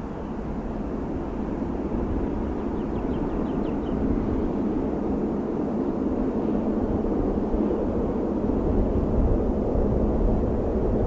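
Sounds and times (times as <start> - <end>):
distant turboprop airliner rumble: 0.0 - 11.0.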